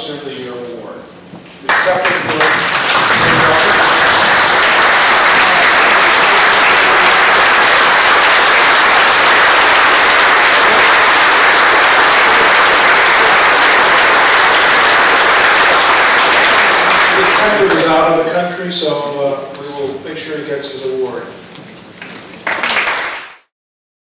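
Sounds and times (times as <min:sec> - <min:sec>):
audience applause: 0:01.7 - 0:18.3, 0:22.0 - 0:23.5.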